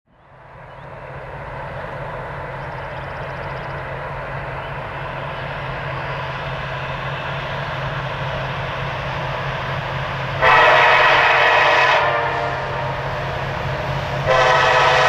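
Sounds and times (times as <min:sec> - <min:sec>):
distant diesel locomotive drone: 0:00.1 - 0:15.0.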